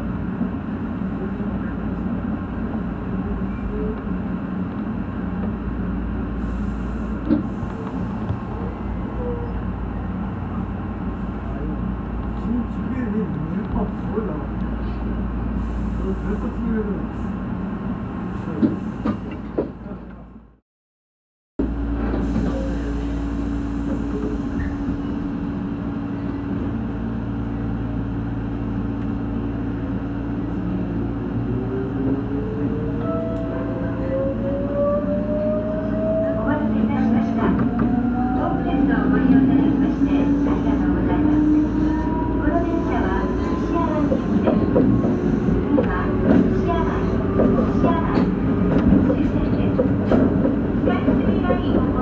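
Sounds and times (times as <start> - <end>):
electric train rumble and hum: 0.0 - 20.6, 21.6 - 52.0.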